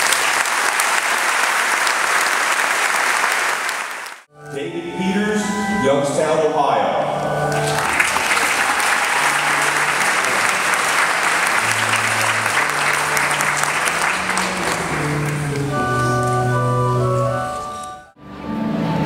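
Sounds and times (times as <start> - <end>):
audience applauding: 0.0 - 4.3, 7.3 - 17.9
instrumental music of held notes: 4.3 - 19.0.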